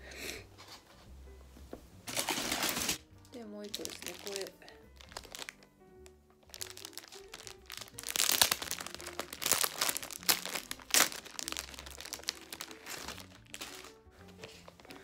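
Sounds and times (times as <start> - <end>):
soft background music: 0.0 - 15.0
plastic packaging crinkling: 2.1 - 3.0, 3.6 - 5.7, 6.4 - 15.0.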